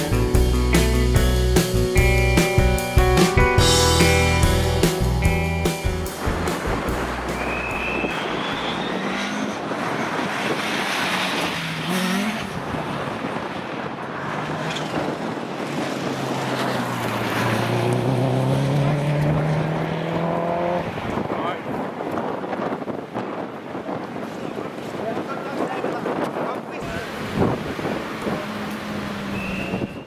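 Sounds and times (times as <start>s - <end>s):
rally car engine revving: 3.6s - 21.3s, 26.8s - 30.0s
second rally car approaching: 6.2s - 30.0s.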